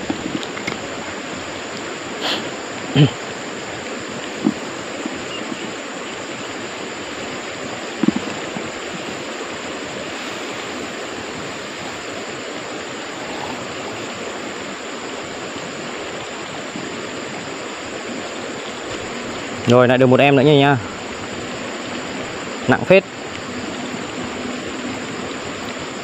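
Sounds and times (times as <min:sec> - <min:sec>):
stream water rushing: 0:00.0 - 0:26.0.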